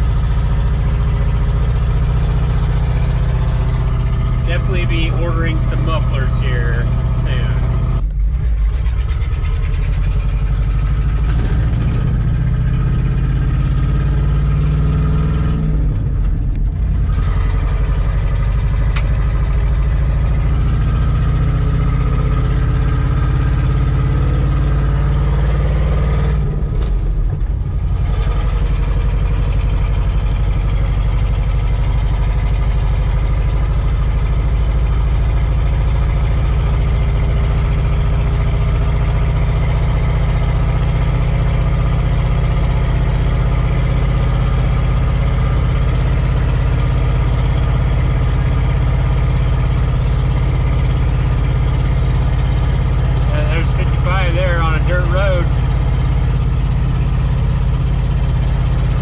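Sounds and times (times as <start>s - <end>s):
truck engine running: 0.0s - 59.0s.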